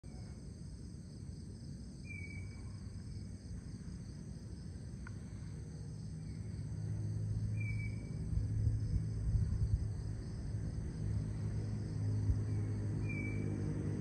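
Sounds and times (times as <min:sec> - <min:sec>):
crickets and night insects chirring: 0:00.0 - 0:14.0
faint click: 0:05.0 - 0:05.2
low rumble: 0:05.0 - 0:14.0.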